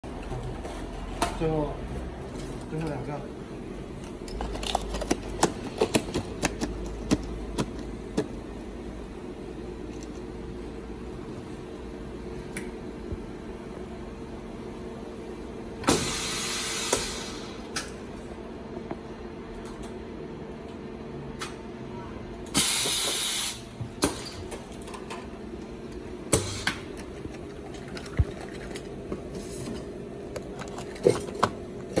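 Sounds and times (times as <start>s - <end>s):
steady electrical hum: 0.0s - 32.0s
compressed air hiss: 15.9s - 17.6s, 22.6s - 23.7s.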